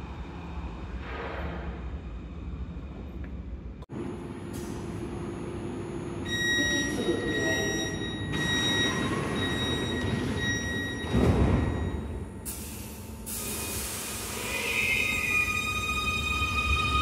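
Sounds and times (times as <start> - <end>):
electronic door-closing beep: 6.2 - 12.2
hiss: 12.5 - 14.9.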